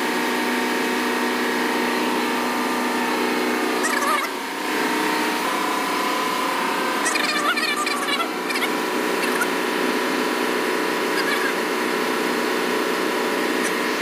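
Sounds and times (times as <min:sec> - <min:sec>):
engine-room machinery drone: 0:00.0 - 0:14.0
voices calling out: 0:03.7 - 0:12.2.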